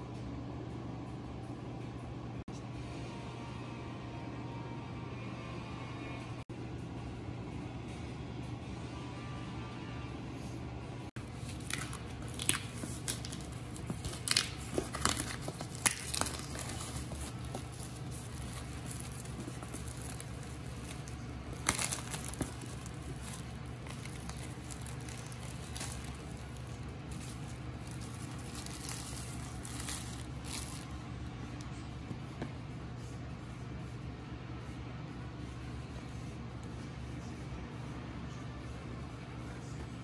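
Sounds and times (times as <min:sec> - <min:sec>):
plastic shrink wrap crinkling: 0:11.2 - 0:31.0.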